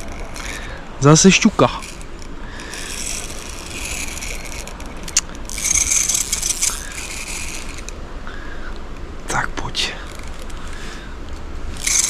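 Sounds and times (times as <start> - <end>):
fishing reel ratcheting whirr: 0.0 - 8.8, 10.0 - 10.9, 11.7 - 12.0.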